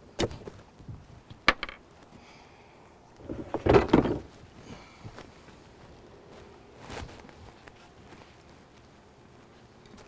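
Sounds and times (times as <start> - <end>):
metal gear case knocking and clattering: 3.3 - 4.3.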